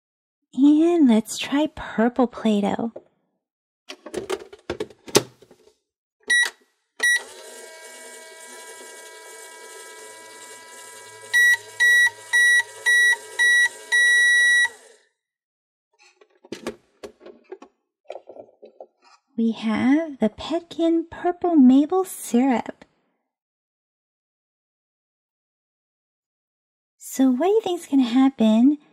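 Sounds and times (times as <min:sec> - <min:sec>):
plastic door clicks: 0:03.9 - 0:05.6
toy microwave beeps: 0:06.3 - 0:08.8, 0:10.2 - 0:15.0.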